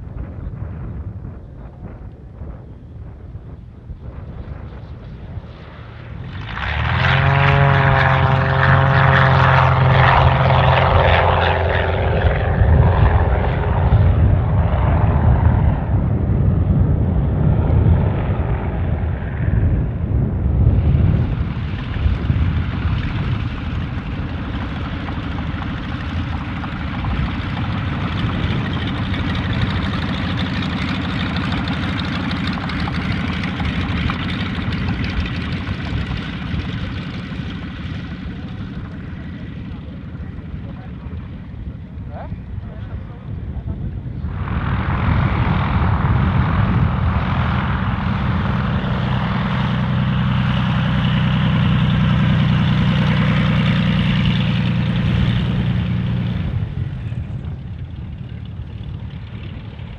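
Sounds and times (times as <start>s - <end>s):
light aircraft engine at full power: 0.0s - 59.9s.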